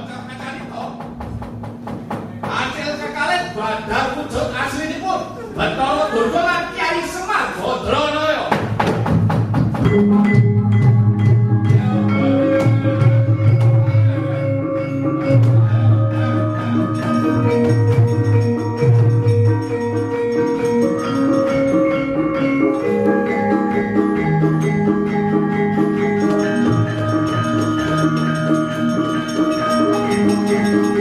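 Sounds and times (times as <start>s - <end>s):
gamelan orchestra playing: 9.8s - 31.0s
metallophones ringing: 9.8s - 31.0s.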